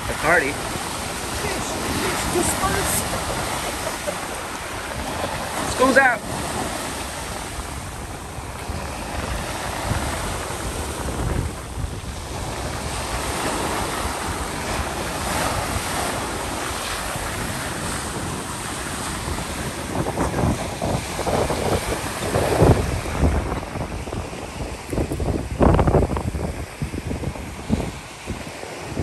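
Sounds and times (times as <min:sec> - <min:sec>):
surf breaking on pebble beach: 0:00.0 - 0:29.0
wind buffeting microphone: 0:00.0 - 0:29.0.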